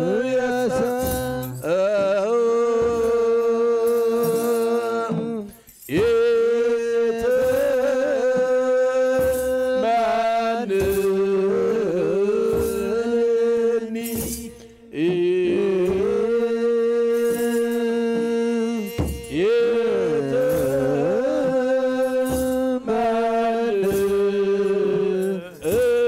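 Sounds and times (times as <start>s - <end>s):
drum strikes: 0.0s - 26.0s
men chanting together: 6.0s - 26.0s.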